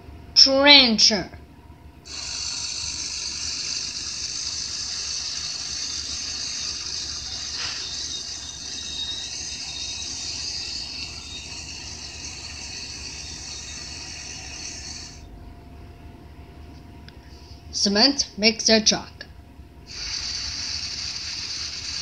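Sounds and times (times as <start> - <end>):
trencher rushing hiss: 2.1 - 15.3, 19.9 - 22.0.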